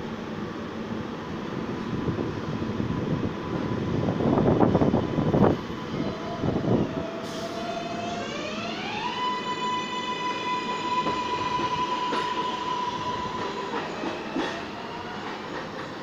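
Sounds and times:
train electric whine: 0:00.3 - 0:16.0
train air hiss: 0:07.1 - 0:08.1.

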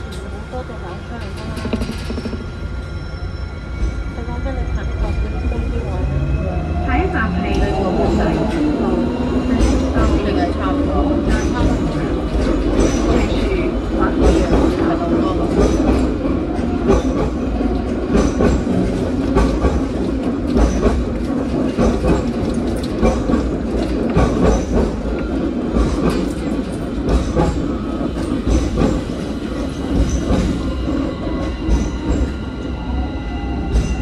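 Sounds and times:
tram wheels rumbling: 0:00.0 - 0:34.0
clatter over rails: 0:01.2 - 0:02.5, 0:07.5 - 0:32.3.

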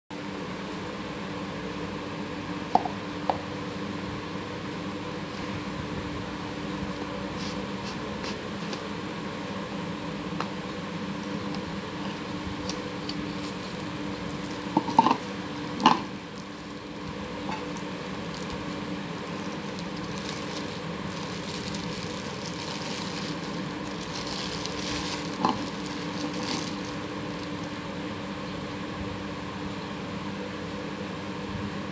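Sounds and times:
steady hum: 0:00.1 - 0:31.9
plastic film crinkling: 0:11.3 - 0:15.3, 0:16.3 - 0:27.8.

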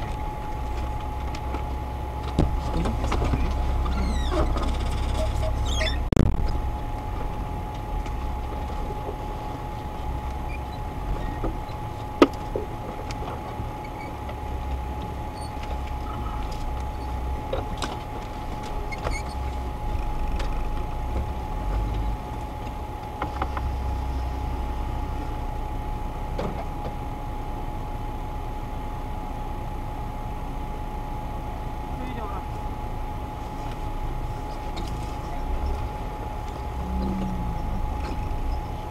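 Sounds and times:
vehicle engine idling: 0:00.0 - 0:38.9
thin whine: 0:34.4 - 0:38.9.

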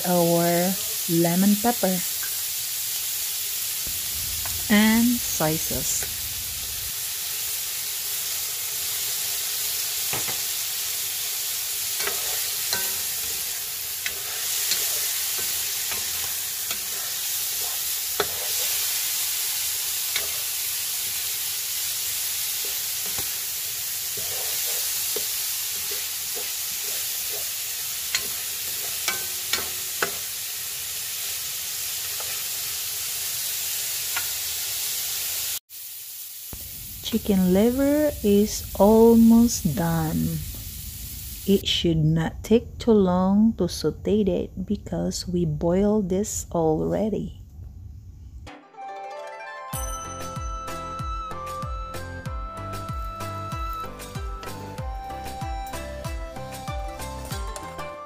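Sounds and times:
food sizzling in a wok: 0:00.0 - 0:41.7, 0:49.8 - 0:57.9
spatula scraping pan: 0:11.9 - 0:19.2, 0:20.0 - 0:20.6, 0:24.1 - 0:30.3.

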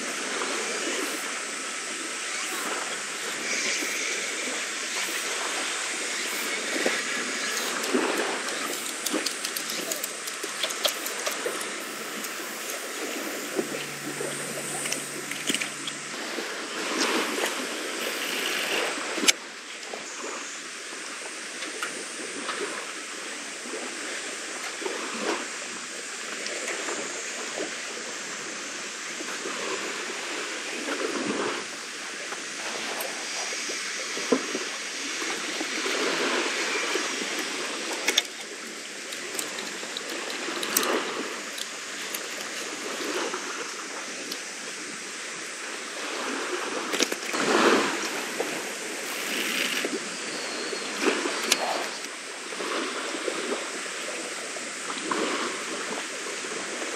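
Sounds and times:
seawater lapping against wall: 0:06.2 - 0:19.4
fishing tackle clicks: 0:07.5 - 0:16.2, 0:39.1 - 0:42.7.

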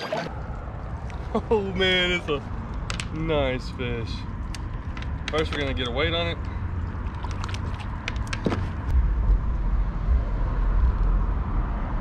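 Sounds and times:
low rumble of traffic: 0:00.0 - 0:12.0
fish scale clicks and rattles: 0:04.4 - 0:06.1, 0:07.0 - 0:08.6.

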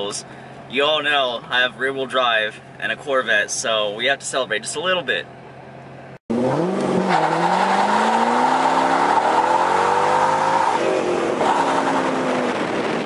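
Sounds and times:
car engine revving hard: 0:06.3 - 0:13.0.

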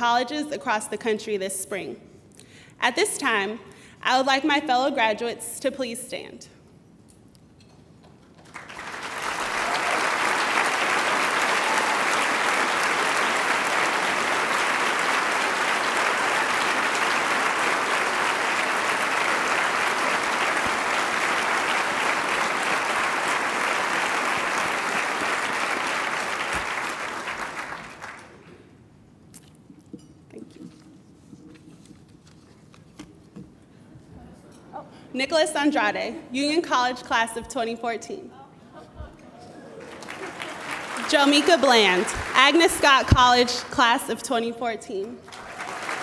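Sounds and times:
audience applauding: 0:08.2 - 0:28.4, 0:39.6 - 0:43.7, 0:45.2 - 0:46.0.

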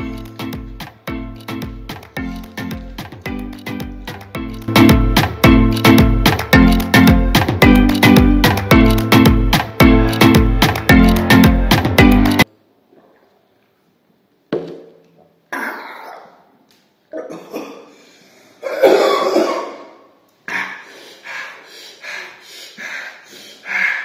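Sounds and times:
man clearing his throat: 0:15.5 - 0:16.4, 0:17.1 - 0:18.0, 0:18.6 - 0:20.0
man coughing: 0:15.5 - 0:16.4, 0:17.1 - 0:18.0, 0:18.6 - 0:20.0.

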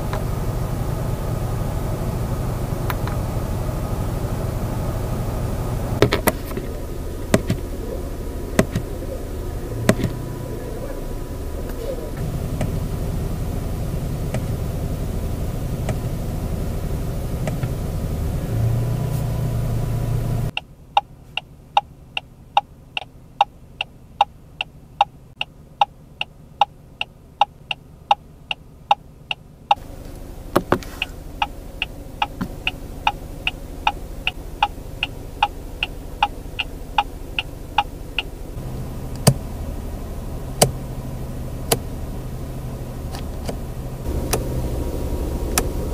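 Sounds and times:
low car interior hum: 0:00.0 - 0:45.9
turn indicator ticking: 0:05.9 - 0:16.6, 0:17.2 - 0:18.7, 0:20.1 - 0:39.5, 0:40.4 - 0:42.0, 0:43.1 - 0:45.9.

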